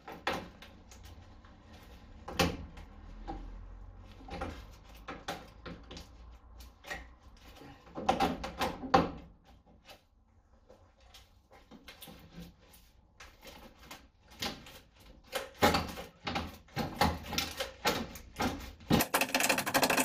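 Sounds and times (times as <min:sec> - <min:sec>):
sheet metal creaking and scraping: 0:18.5 - 0:20.0.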